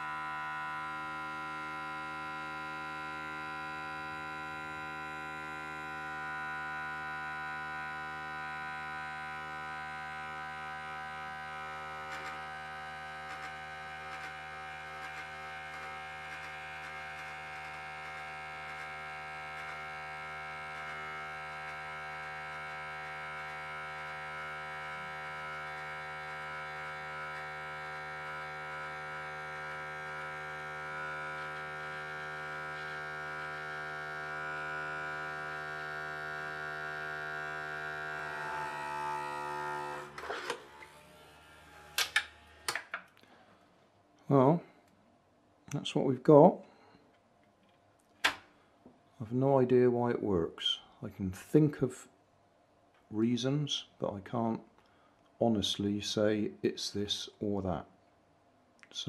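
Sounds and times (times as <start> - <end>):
electric toothbrush buzzing: 0.0 - 43.0.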